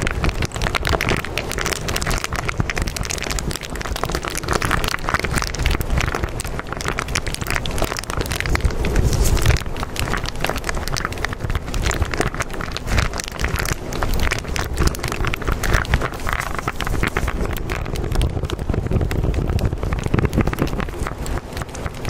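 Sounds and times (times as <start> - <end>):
continuous rushing noise: 0.0 - 22.0
deep rumble: 0.0 - 22.0
dense crackling: 0.0 - 22.0.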